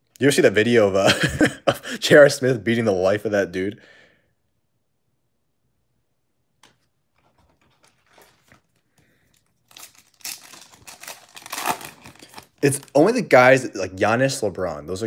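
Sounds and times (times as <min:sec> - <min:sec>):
foil wrapper tearing and crinkling: 0:09.6 - 0:13.0.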